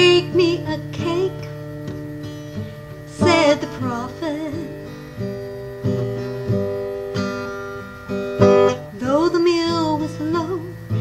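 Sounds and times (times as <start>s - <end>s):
woman singing: 0.0s - 1.6s, 3.1s - 4.9s, 8.9s - 11.0s
acoustic guitar strumming: 0.0s - 11.0s.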